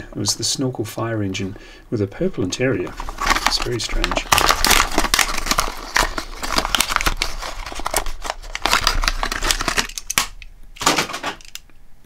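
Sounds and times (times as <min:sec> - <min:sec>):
toy packaging being opened: 0:02.9 - 0:11.6.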